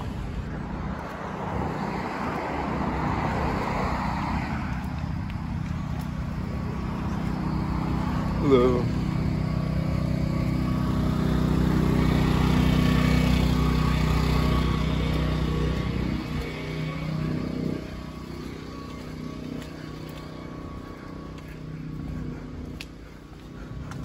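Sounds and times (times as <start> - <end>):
engine drone: 0.0 - 24.0
street noise: 0.0 - 24.0.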